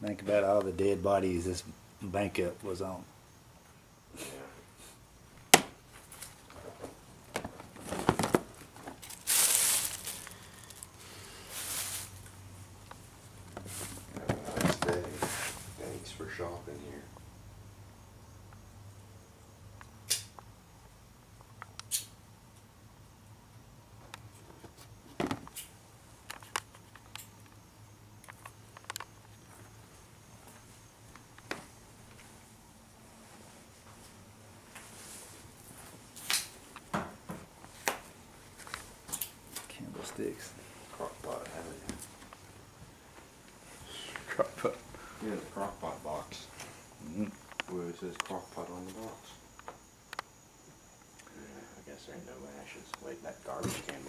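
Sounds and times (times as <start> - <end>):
plastic bins being handled: 5.4 - 12.3, 13.3 - 16.2
rustling scrape: 7.7 - 12.3, 13.6 - 15.8
sharp plastic click: 20.1 - 20.4.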